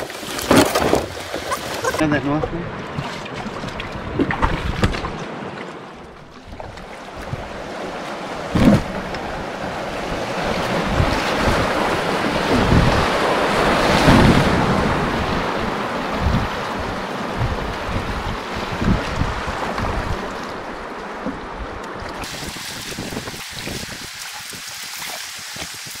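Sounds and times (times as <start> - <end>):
wind buffeting microphone: 6.2 - 26.0.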